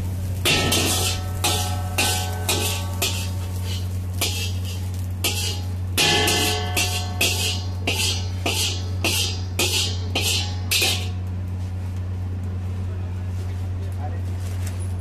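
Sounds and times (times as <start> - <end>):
low hum: 0.0 - 13.3
metal spatula scraping a wok: 0.4 - 11.2.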